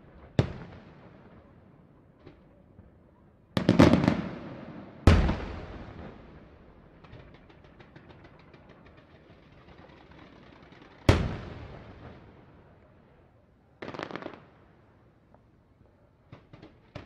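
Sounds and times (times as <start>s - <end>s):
loud firework bang echoing: 5.0s - 6.3s
fireworks crackling pops: 5.1s - 11.6s, 13.8s - 14.4s.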